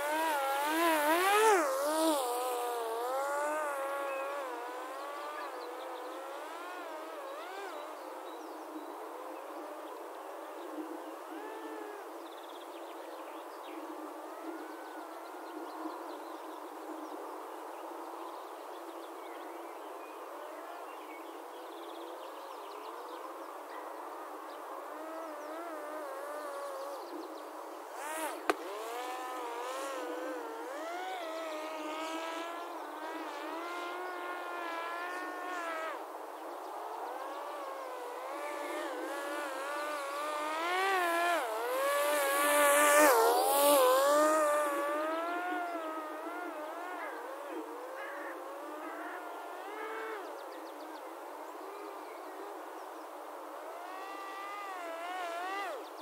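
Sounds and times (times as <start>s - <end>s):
drone propeller buzzing: 0.0s - 8.0s, 28.0s - 36.0s, 36.7s - 50.1s, 53.7s - 55.9s.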